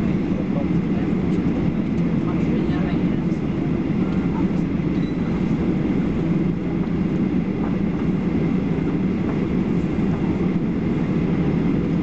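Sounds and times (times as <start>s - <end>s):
jet engines at low thrust: 0.0s - 12.0s.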